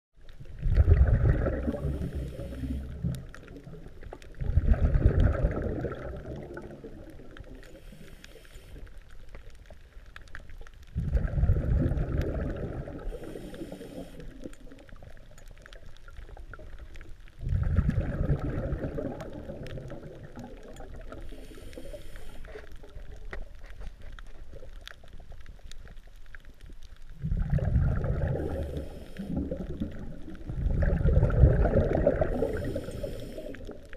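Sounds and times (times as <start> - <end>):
exhaled bubbles underwater: 0.2 - 8.2, 9.0 - 22.0, 24.4 - 33.9
regulator inhalation hiss: 1.9 - 3.0, 7.7 - 9.0, 13.1 - 14.4, 21.2 - 22.7, 28.4 - 29.4, 32.3 - 33.7.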